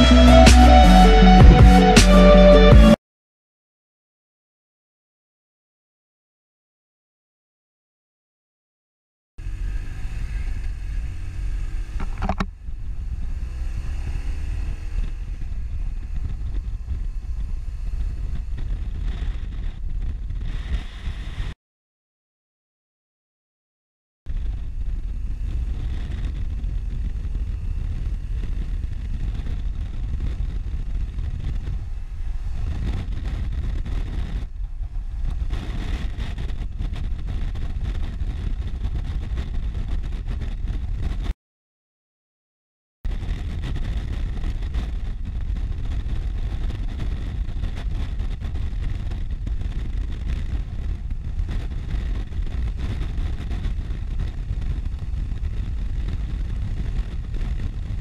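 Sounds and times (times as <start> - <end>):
wind and road noise: 0.0 - 2.9, 9.4 - 21.6, 24.3 - 41.4, 43.1 - 58.0
motorcycle engine: 0.0 - 3.0, 9.4 - 21.6, 24.3 - 41.2.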